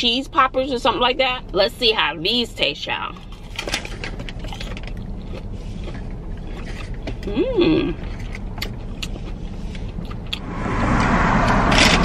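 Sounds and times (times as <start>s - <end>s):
chewing crunchy food: 3.2s - 10.4s
low hum: 10.2s - 12.0s.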